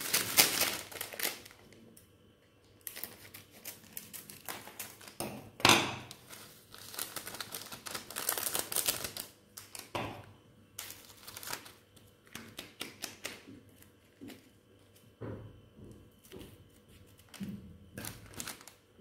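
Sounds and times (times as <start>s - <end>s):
plastic foil crinkling: 0.0s - 1.8s, 2.8s - 5.2s, 6.1s - 10.0s, 10.8s - 14.9s, 17.0s - 19.0s
scissors snipping plastic sachets: 0.0s - 1.8s, 2.8s - 5.2s, 17.2s - 18.8s.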